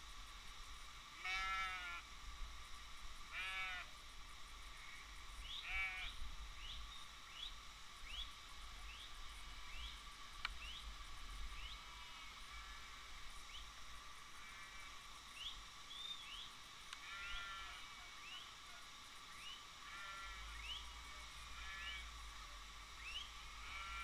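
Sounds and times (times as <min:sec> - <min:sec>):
sheep and goats bleating: 0:01.2 - 0:02.0, 0:03.3 - 0:03.9, 0:05.6 - 0:06.1, 0:17.0 - 0:18.0, 0:19.8 - 0:20.5, 0:23.6 - 0:24.0.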